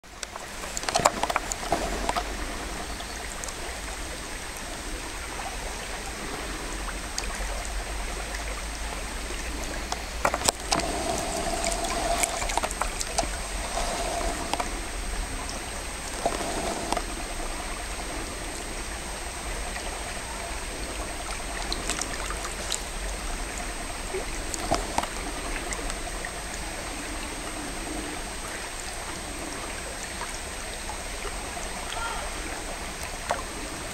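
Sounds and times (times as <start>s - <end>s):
stream babbling over gravel: 0.0s - 33.9s
faint clicks: 0.1s - 2.3s, 3.0s - 3.7s, 9.6s - 13.4s, 15.4s - 17.1s
thin high whine: 10.1s - 18.8s.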